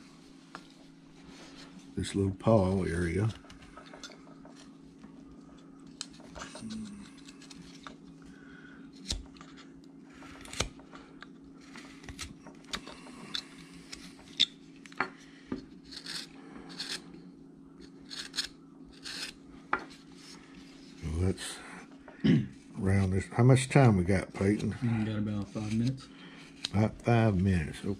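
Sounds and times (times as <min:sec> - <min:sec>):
faint steady hum: 0:00.0 - 0:27.9
knife shaving wood: 0:04.4 - 0:14.6, 0:15.7 - 0:17.2, 0:17.8 - 0:21.2.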